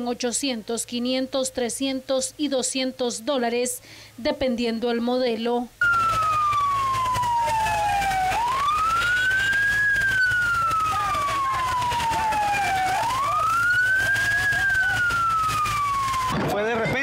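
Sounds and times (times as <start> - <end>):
emergency siren wailing: 5.8 - 17.0.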